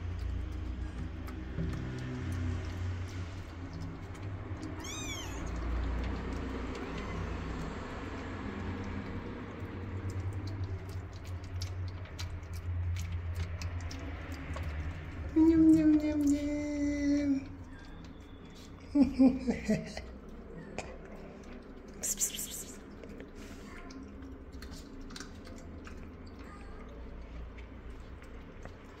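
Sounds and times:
cat meowing: 4.7s - 5.6s, 6.8s - 7.6s.

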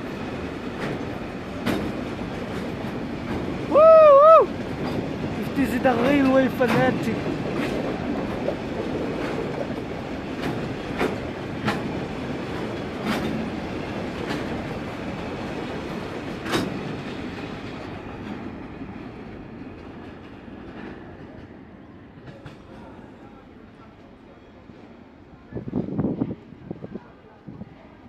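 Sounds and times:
train wheels clacking over rail joints: 0.0s - 3.7s, 4.5s - 23.2s.

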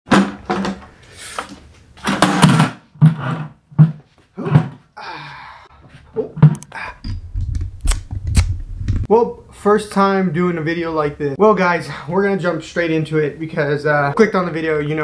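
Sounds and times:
handling knocks and thuds: 0.1s - 0.9s, 2.0s - 4.9s.

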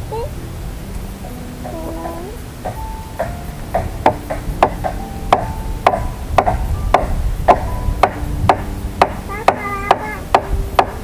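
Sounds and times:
hand tool striking wood: 2.6s - 11.0s.

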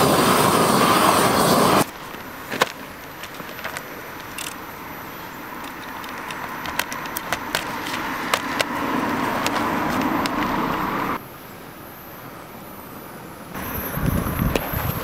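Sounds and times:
car on road: 3.8s - 11.2s.

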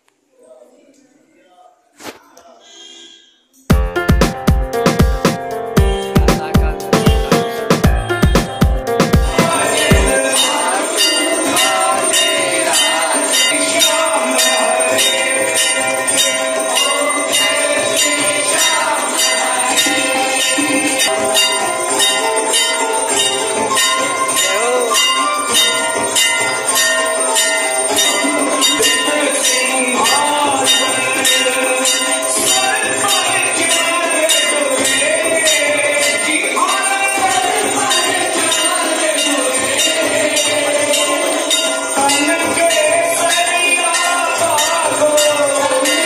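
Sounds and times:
temple bells ringing: 5.6s - 46.0s.

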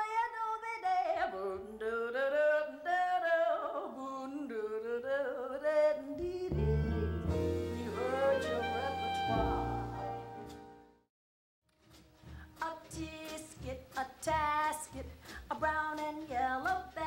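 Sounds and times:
band playing low held notes: 6.5s - 10.8s.

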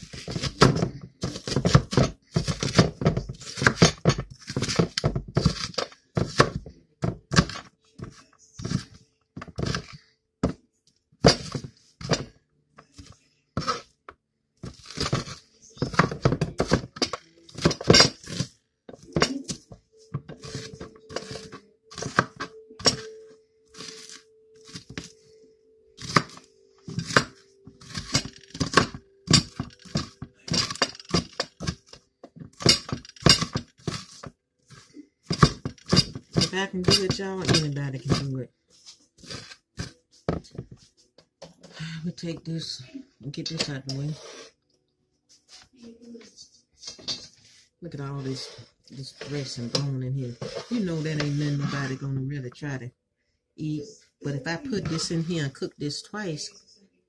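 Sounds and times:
knife chopping on plastic board: 0.0s - 10.6s, 11.2s - 12.3s, 14.6s - 23.1s, 26.0s - 38.4s.

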